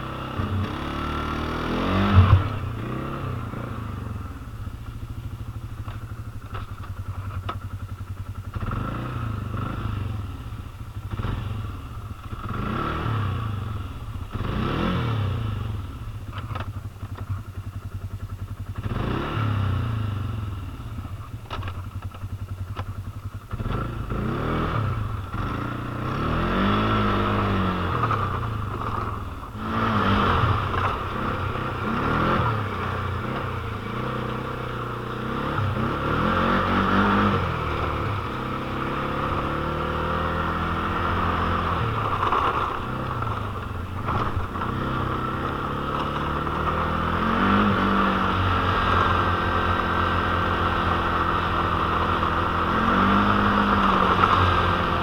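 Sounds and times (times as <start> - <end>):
quad bike engine revving: 0.0 - 17.4, 18.6 - 55.0.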